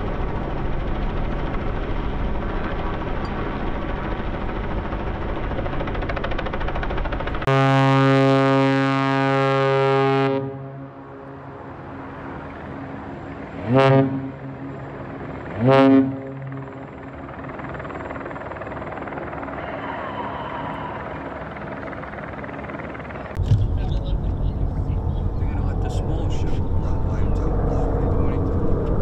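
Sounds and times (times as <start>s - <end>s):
deep ship horn blasts: 7.4s - 11.6s, 13.5s - 16.8s.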